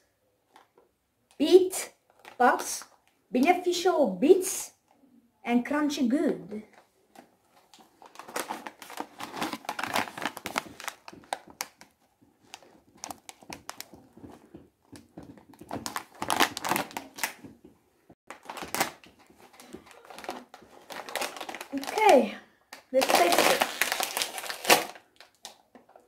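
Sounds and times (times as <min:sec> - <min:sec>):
plastic snack bag crinkling: 0:07.6 - 0:17.6, 0:18.3 - 0:26.0.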